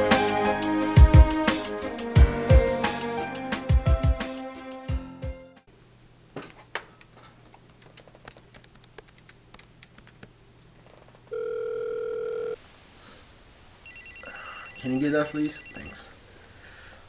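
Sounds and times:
telephone tone: 0:11.3 - 0:12.6, 0:13.8 - 0:16.1.

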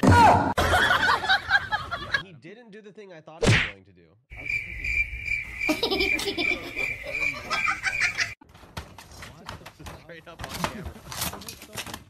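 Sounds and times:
crickets chirping: 0:04.3 - 0:08.4.

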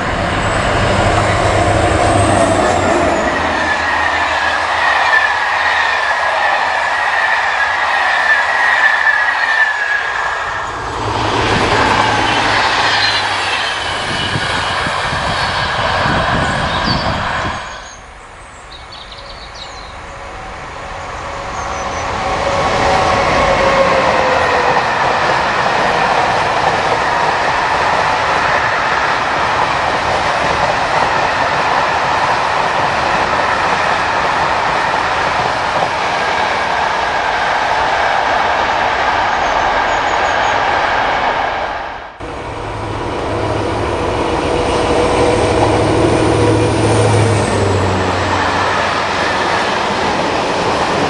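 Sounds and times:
freight train rolling on rails: 0:00.0 - 0:51.0
train passing: 0:00.0 - 0:51.0
high-pitched wheel squealing: 0:12.2 - 0:18.0.

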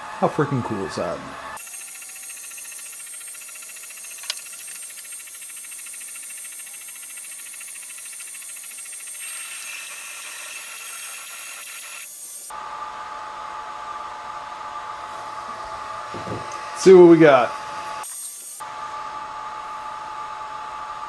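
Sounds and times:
machine tone: 0:00.0 - 0:13.2
laser engraver hiss and whine: 0:01.6 - 0:12.5, 0:16.8 - 0:21.0.

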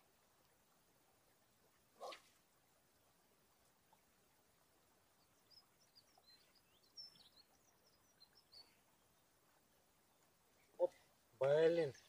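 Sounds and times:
small bird chirping: 0:05.2 - 0:09.4.

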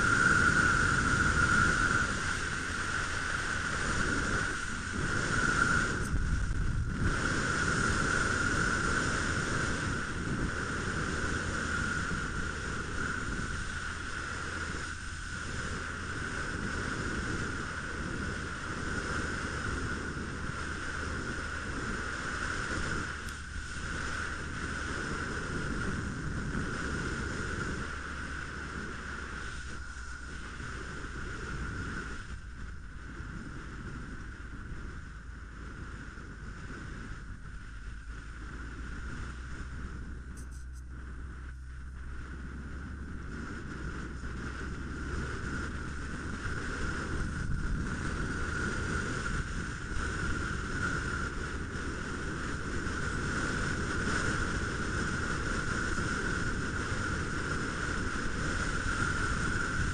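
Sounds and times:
steady high whine: 0:00.0 - 0:59.9
wind rush from moving motorcycle: 0:00.0 - 0:59.9.

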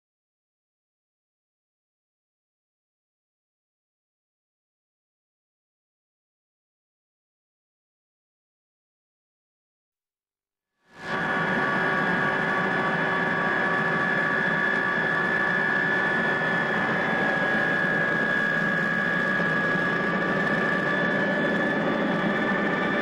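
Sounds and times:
helicopter engine and rotor: 0:11.0 - 0:23.0.

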